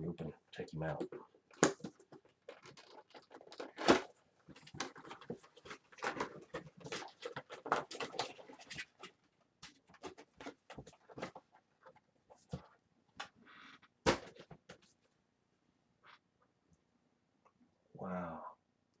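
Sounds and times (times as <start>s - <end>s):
packaging rustling and crinkling: 1.6s - 12.7s.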